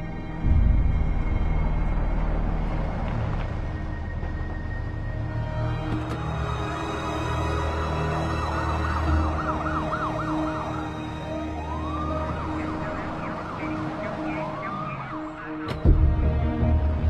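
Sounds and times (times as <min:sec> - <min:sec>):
low rumble: 0:00.2 - 0:06.0
emergency sirens yelping and wailing: 0:01.8 - 0:17.0.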